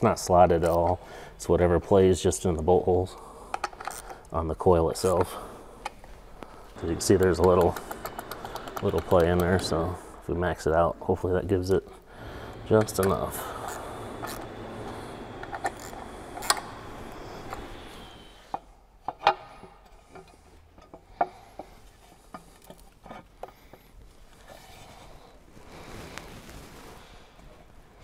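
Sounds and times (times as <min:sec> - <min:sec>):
rubbing and handling noise: 0:03.6 - 0:18.7, 0:21.6 - 0:28.0.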